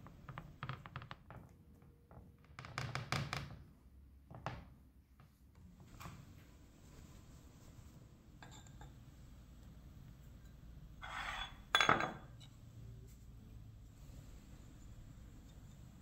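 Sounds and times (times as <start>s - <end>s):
bowl scraping on countertop: 11.0s - 12.0s
ceramic bowl clunk on countertop: 11.7s - 12.3s.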